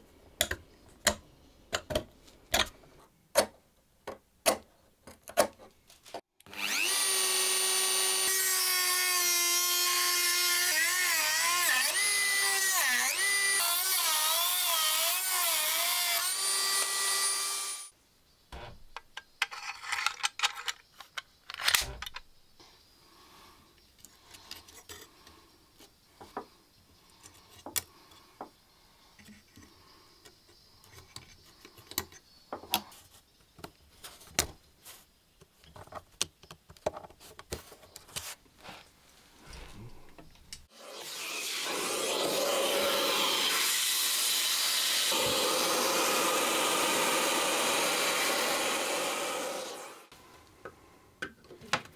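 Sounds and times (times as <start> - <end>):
high-speed rotary tool: 6.5 - 17.9, 40.7 - 50.1.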